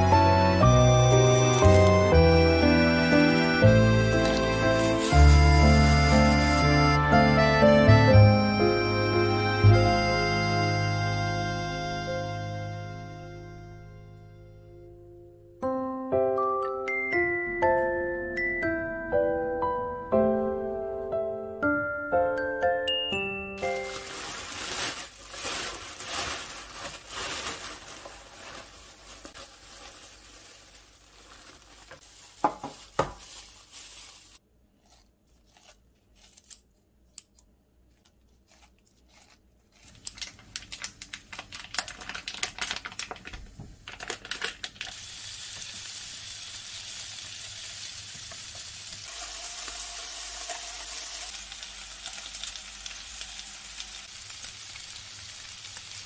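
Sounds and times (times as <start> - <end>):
plastic bag rustling: 0.7 - 6.7, 23.6 - 34.4, 39.7 - 45.3
kitchen scissors snipping: 34.8 - 40.8
meat sizzling in a frying pan: 44.9 - 56.0.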